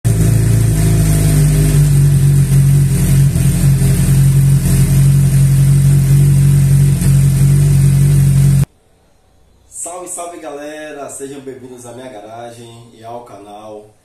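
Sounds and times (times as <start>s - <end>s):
motorcycle engine idling: 0.1s - 8.7s.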